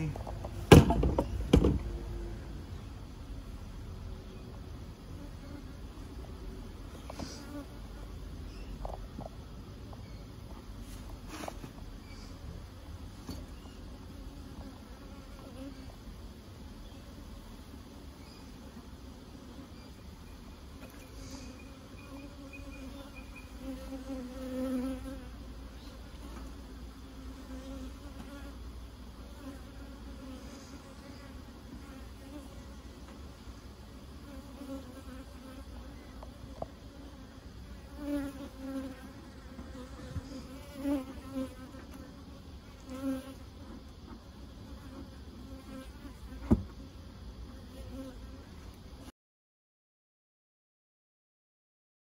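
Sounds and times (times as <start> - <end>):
bees buzzing: 18.9 - 49.1.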